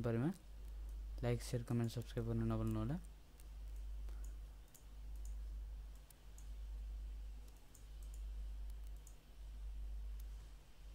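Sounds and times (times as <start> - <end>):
computer mouse clicks: 1.8 - 6.6, 7.4 - 9.2.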